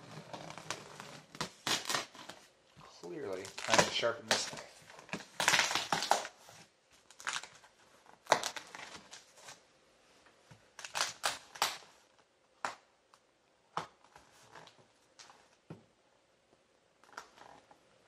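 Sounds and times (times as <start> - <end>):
cardboard scraping and creaking: 0.0 - 2.5
knife slitting packing tape: 1.4 - 2.4, 5.4 - 6.4, 10.8 - 11.9.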